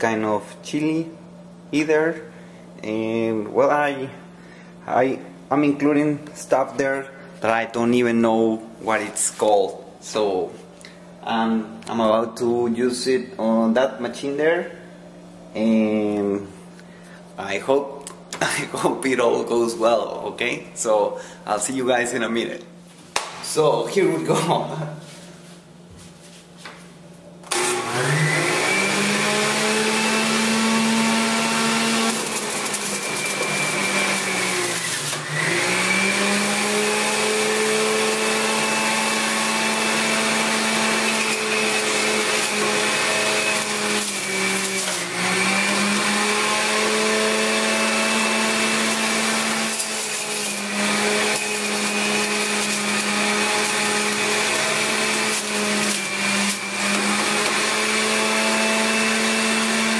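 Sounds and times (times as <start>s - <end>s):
juicer motor whining: 27.4s - 59.9s.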